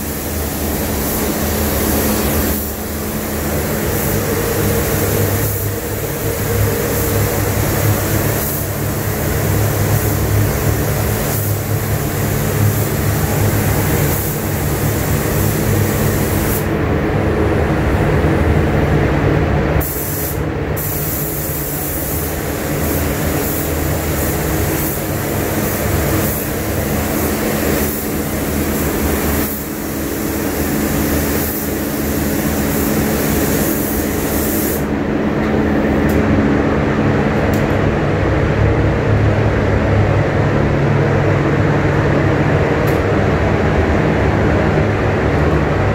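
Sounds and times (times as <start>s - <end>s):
paint spray gun hissing: 0.0s - 16.8s, 19.8s - 34.9s
ventilation drone: 0.0s - 45.9s.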